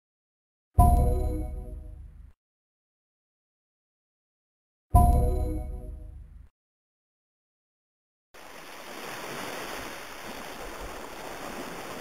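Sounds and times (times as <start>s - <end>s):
background music: 0.8s - 2.3s, 5.0s - 6.5s.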